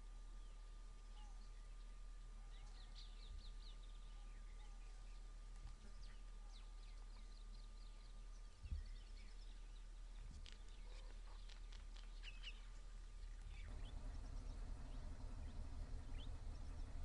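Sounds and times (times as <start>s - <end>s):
small birds chirping: 0.0s - 17.0s
low rumble: 3.1s - 17.0s.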